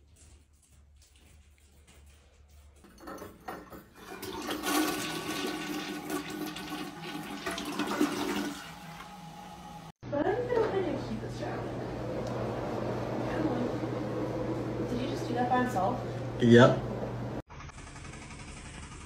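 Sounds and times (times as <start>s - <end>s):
toilet flushing: 3.0s - 10.0s.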